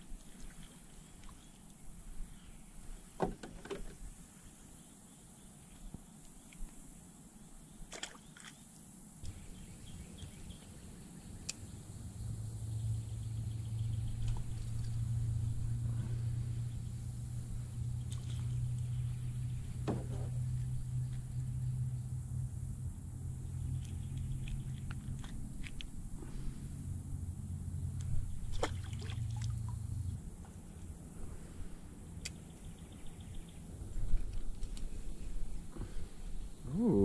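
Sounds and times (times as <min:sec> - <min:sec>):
motor droning: 0:09.3 - 0:34.4.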